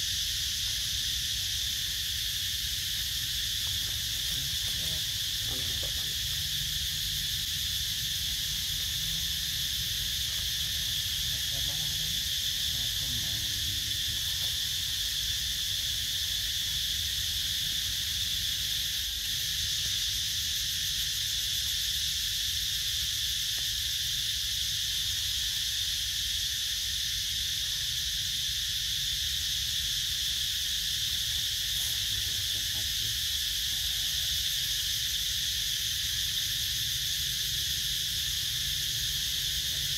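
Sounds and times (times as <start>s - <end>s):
insects chorus: 0.0s - 39.9s.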